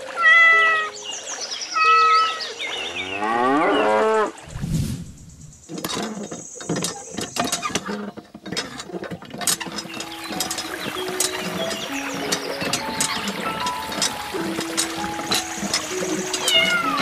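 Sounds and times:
cow mooing: 0:03.0 - 0:04.3
hand pump clicking: 0:05.7 - 0:17.0.

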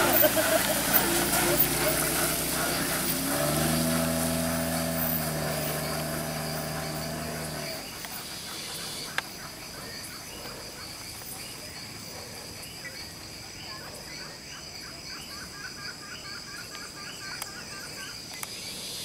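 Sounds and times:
car droning: 0:00.0 - 0:09.2
insects chirring: 0:00.0 - 0:19.0.

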